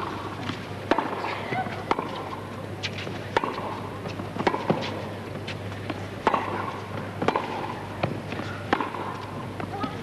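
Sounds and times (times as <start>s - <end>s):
tennis ball bouncing: 0.0s - 10.0s
tennis racquets hitting ball: 0.0s - 10.0s.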